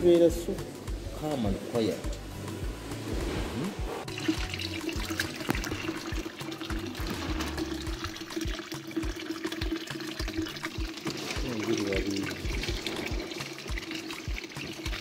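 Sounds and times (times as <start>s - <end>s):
background music with steady beat: 0.0s - 15.0s
water running into a bucket: 4.0s - 15.0s.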